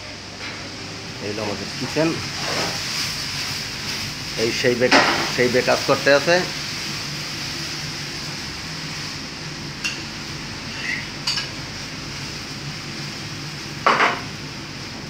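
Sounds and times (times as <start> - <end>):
kitchen background hum: 0.0 - 15.0
utensils and dishes clinking: 10.7 - 11.5.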